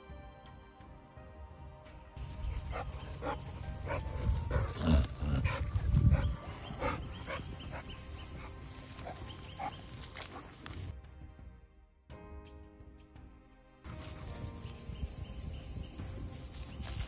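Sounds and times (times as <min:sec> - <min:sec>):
faint background music: 0:00.0 - 0:17.0
dogs barking: 0:02.2 - 0:10.9
low rumbling on microphone: 0:02.2 - 0:10.9.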